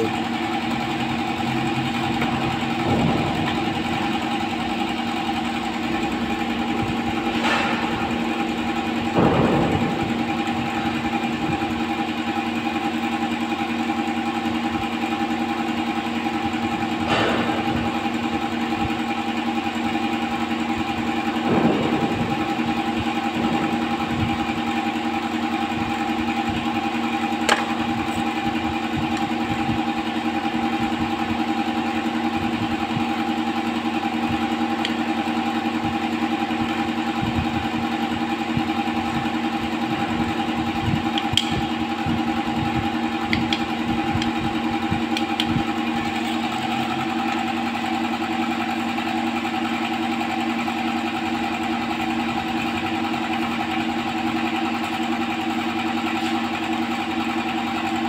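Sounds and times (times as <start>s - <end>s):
machinery droning: 0.0s - 14.4s, 16.3s - 49.5s.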